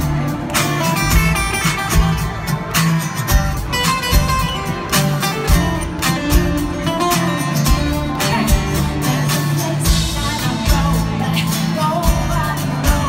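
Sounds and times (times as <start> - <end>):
drums: 0.0 - 13.0
strummed acoustic guitar: 0.0 - 13.0
woman singing: 7.5 - 13.0.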